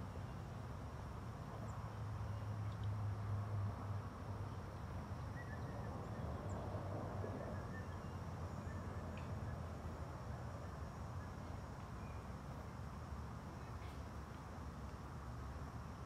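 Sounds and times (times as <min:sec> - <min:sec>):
soft even hiss: 0:07.4 - 0:16.0.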